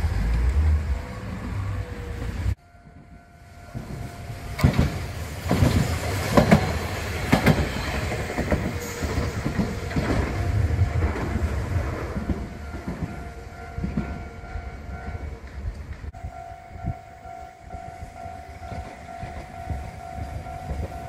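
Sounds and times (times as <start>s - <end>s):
tram passing: 0.0s - 21.0s
wheels clacking over rail joints: 3.7s - 16.2s.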